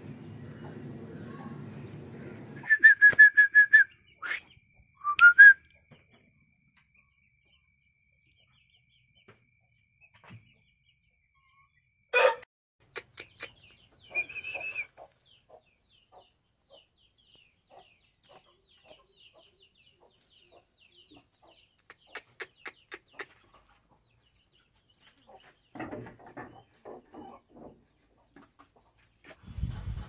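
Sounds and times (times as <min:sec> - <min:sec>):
chickens clucking: 0:12.2 - 0:30.0.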